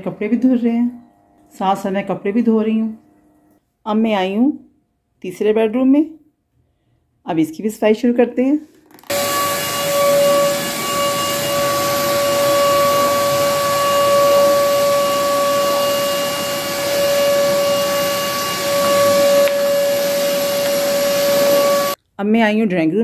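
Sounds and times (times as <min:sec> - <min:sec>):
vacuum cleaner on carpet: 0:09.1 - 0:22.0.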